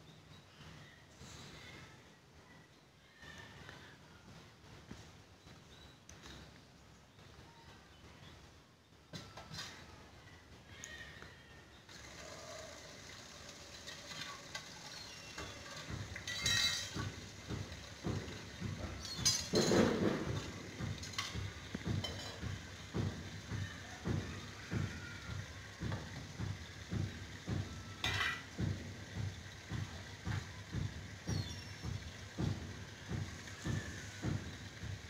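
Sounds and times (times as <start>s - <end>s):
rustles and clatters: 3.1s - 35.0s.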